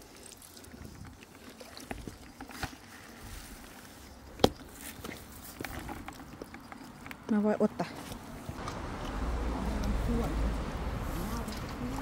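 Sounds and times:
water splashing: 0.0s - 3.7s.

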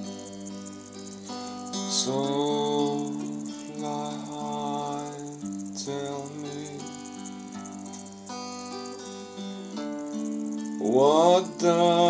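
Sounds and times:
man singing: 1.7s - 7.0s, 10.8s - 12.0s.

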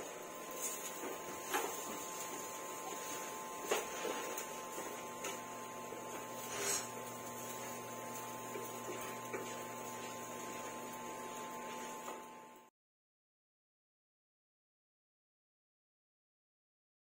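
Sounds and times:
electrical hum with hiss: 0.0s - 12.7s.

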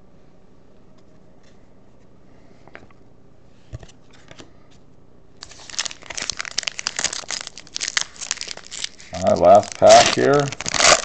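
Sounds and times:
foil wrapper crinkling and tearing: 5.4s - 11.0s.

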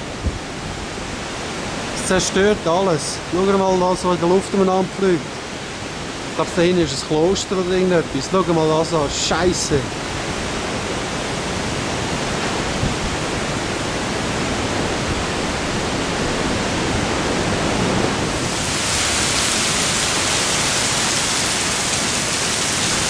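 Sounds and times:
heavy rain lashing: 0.0s - 23.0s
strong wind rushing: 10.0s - 23.0s.

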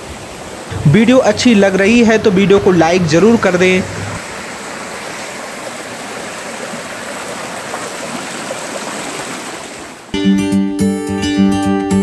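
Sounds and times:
stream rushing over rocks: 0.0s - 10.1s.

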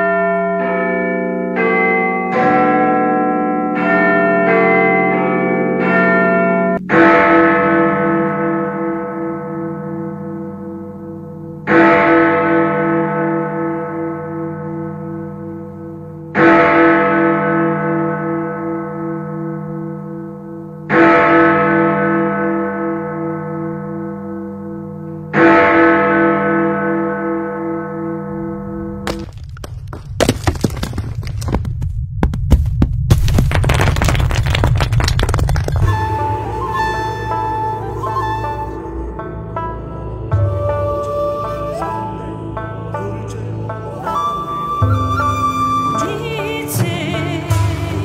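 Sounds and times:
large bell ringing: 0.0s - 29.1s
clattering noise: 29.0s - 36.2s.

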